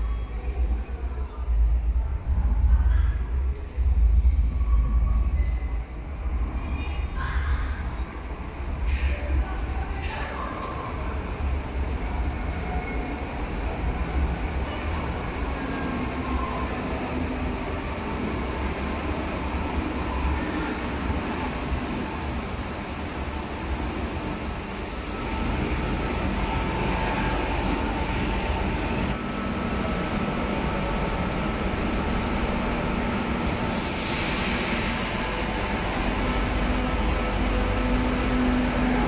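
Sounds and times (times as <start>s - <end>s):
electric train rumbling: 0.0s - 39.0s.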